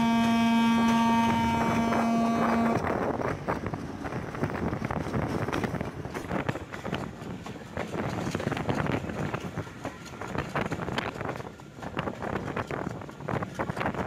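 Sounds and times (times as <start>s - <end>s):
train horn chord: 0.0s - 2.9s
train wheels clattering on track: 0.0s - 14.0s
wind buffeting microphone: 0.0s - 14.0s.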